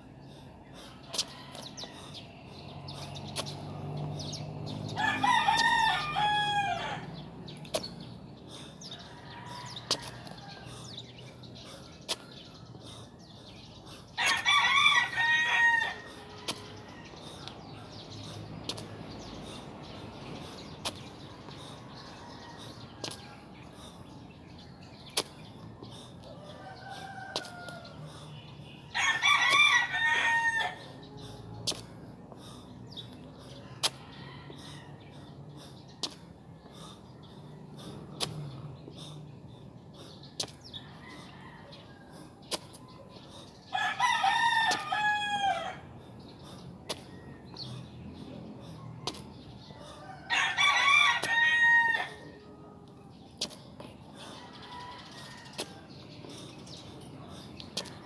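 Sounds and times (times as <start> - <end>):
rooster crowing: 5.0 - 7.1, 14.2 - 16.1, 29.0 - 30.9, 43.7 - 45.8, 50.0 - 52.3.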